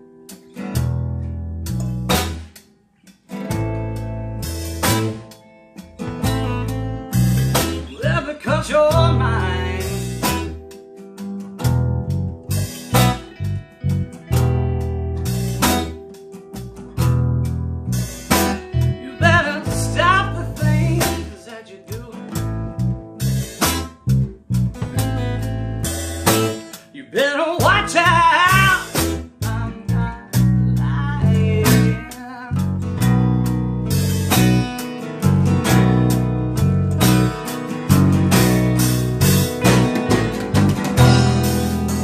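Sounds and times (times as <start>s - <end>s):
blues band playing: 0.0s - 42.0s
man singing: 7.7s - 10.1s, 19.0s - 22.5s, 26.9s - 32.8s.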